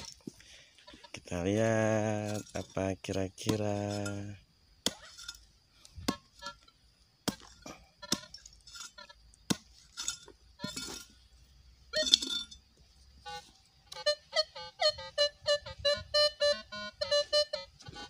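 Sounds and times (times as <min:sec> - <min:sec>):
hand hoe striking stony soil: 0:00.0 - 0:01.0, 0:01.6 - 0:11.2.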